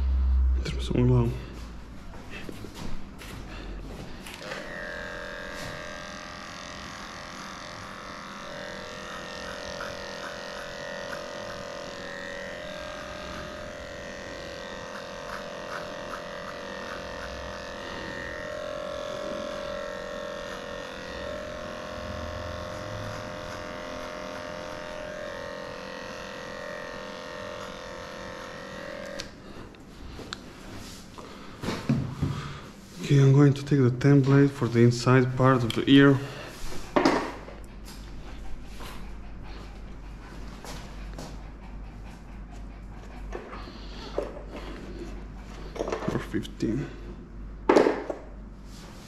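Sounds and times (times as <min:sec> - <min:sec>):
electric clippers humming: 0:02.8 - 0:32.7, 0:33.3 - 0:39.1.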